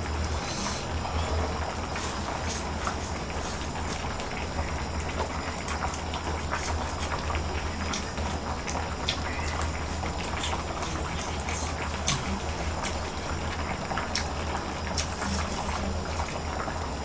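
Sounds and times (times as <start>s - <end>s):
gas burner hiss: 0.0s - 17.0s
steady low hum: 0.0s - 17.0s
stew bubbling with small pops: 0.0s - 17.0s.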